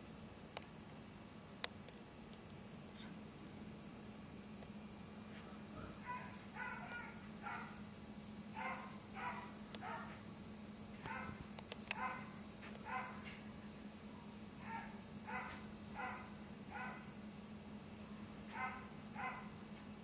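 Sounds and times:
steady high hiss: 0:00.0 - 0:20.0
dog barking: 0:05.8 - 0:07.8, 0:08.6 - 0:10.2, 0:11.0 - 0:13.3, 0:14.6 - 0:17.1, 0:18.5 - 0:19.5
faint clicks: 0:11.0 - 0:12.0.

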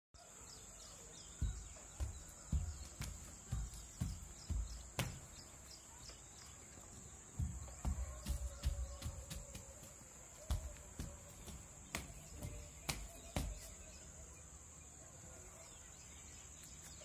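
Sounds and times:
bare feet thudding on concrete: 0:01.3 - 0:14.0.

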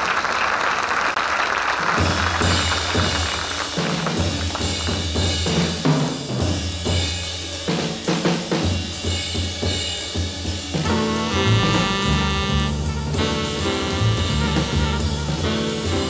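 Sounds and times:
jazz drum kit playing: 0:02.0 - 0:16.0
horns playing: 0:10.8 - 0:16.0.

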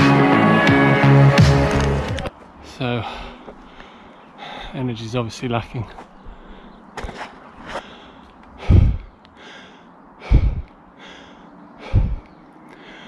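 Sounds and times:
heavy laboured breathing: 0:02.6 - 0:05.0, 0:06.0 - 0:13.0.

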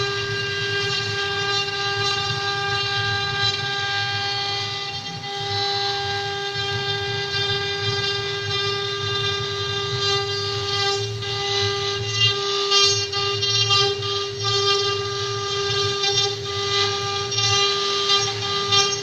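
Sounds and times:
cutters carving wood: 0:00.0 - 0:19.0
router spindle motor whine: 0:00.0 - 0:19.0.

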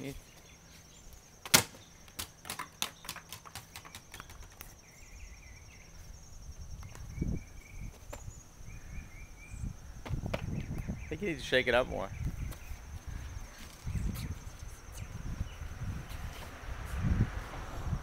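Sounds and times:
plastic bottle bouncing on asphalt: 0:10.0 - 0:10.6.

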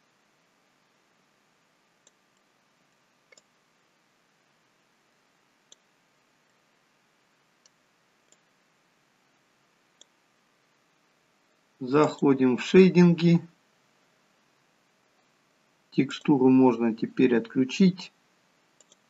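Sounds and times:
computer mouse clicks: 0:02.0 - 0:02.5, 0:03.3 - 0:03.6, 0:05.7 - 0:05.9, 0:07.6 - 0:08.5, 0:10.0 - 0:10.2, 0:12.0 - 0:12.2, 0:18.8 - 0:19.0.

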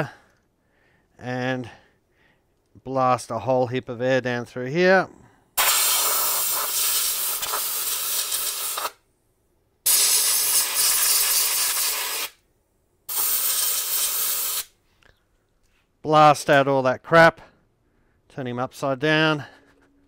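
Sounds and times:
compressed air hissing bursts: 0:05.6 - 0:09.0, 0:09.9 - 0:12.4, 0:13.1 - 0:14.8.

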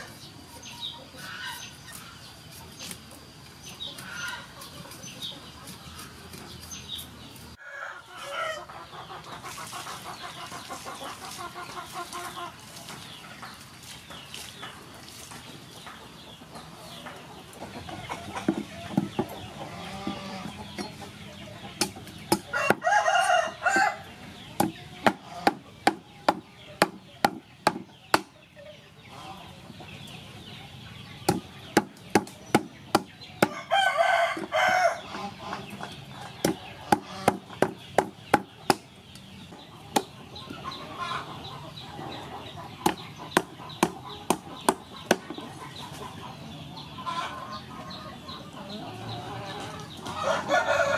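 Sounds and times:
rooster crowing: 0:07.6 - 0:08.7, 0:22.5 - 0:24.0, 0:33.4 - 0:35.0, 0:50.2 - 0:50.9
knife chopping on wooden block: 0:24.6 - 0:28.3, 0:36.4 - 0:38.8.

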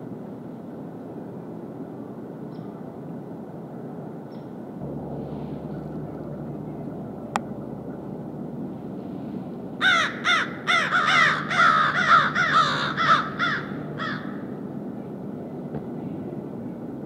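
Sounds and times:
low steady hum: 0:00.0 - 0:17.0
bird harsh calls: 0:09.8 - 0:14.4.

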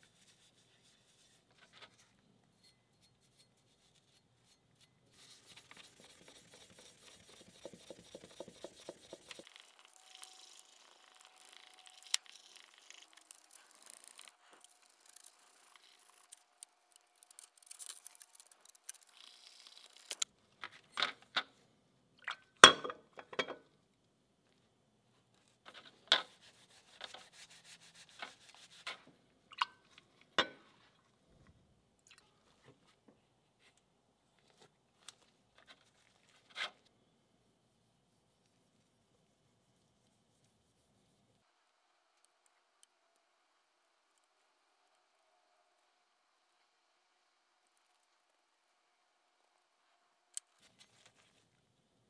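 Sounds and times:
swab rubbing on steel: 0:02.5 - 0:16.4.

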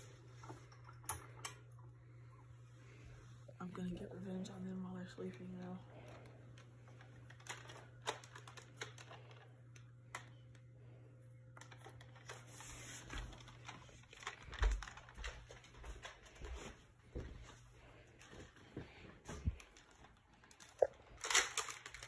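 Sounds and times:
rustling blankets: 0:12.4 - 0:22.0.

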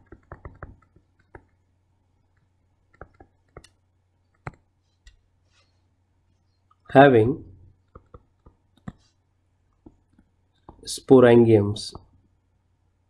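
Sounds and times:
stylus tapping on tablet: 0:00.0 - 0:01.6, 0:02.4 - 0:05.2, 0:07.8 - 0:09.0.

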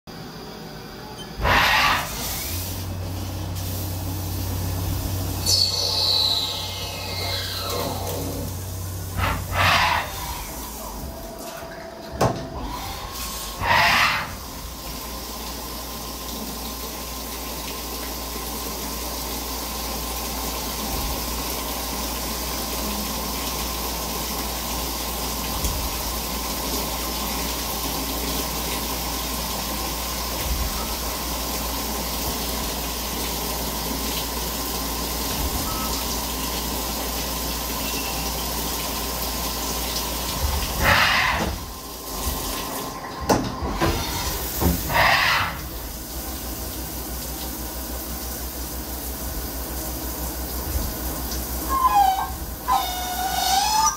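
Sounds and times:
coolant spray rushing: 0:01.3 - 0:11.2.

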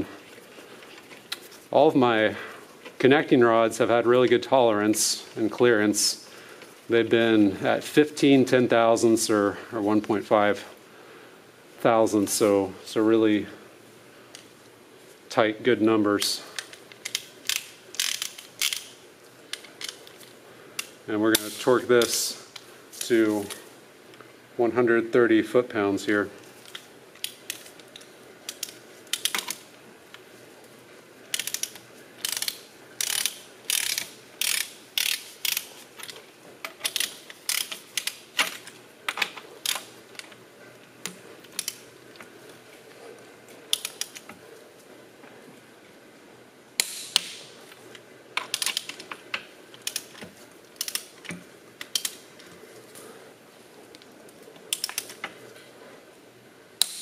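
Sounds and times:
torque wrench ratchet clicking: 0:17.0 - 0:18.9, 0:31.3 - 0:35.7, 0:36.8 - 0:38.2, 0:50.8 - 0:51.1.

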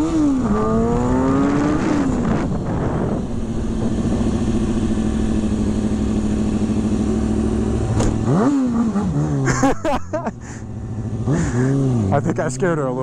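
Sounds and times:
wind noise on microphone: 0:00.0 - 0:05.6
motorcycle engine: 0:00.0 - 0:13.0.

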